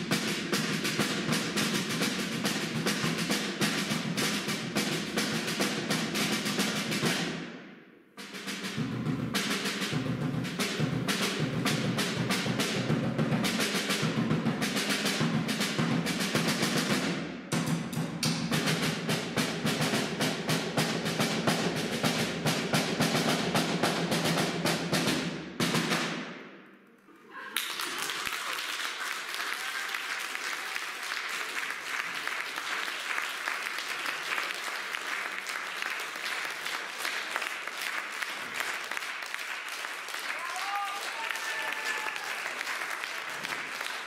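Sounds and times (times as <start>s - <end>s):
fast dense drumming: 0.0s - 7.3s, 8.2s - 26.2s
audience applauding: 27.1s - 44.0s.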